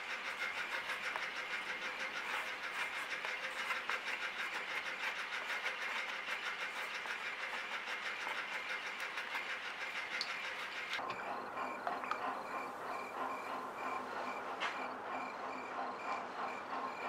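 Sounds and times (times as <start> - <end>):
pen scratching on paper: 0.0 - 11.0.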